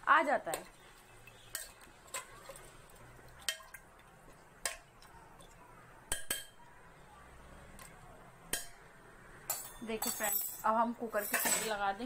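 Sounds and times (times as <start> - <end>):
metal spoon clinking on pot: 0.5 - 2.3, 9.5 - 11.8.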